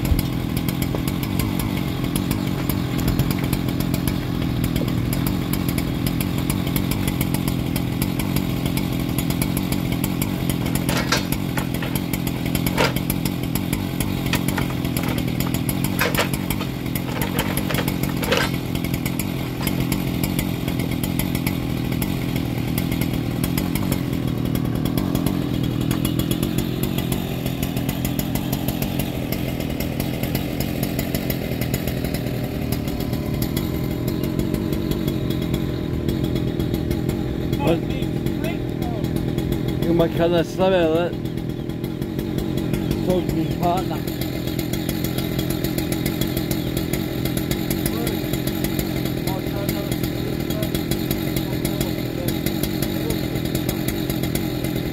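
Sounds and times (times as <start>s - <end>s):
engine running: 0.0s - 54.9s
sharp knocks: 10.6s - 13.1s.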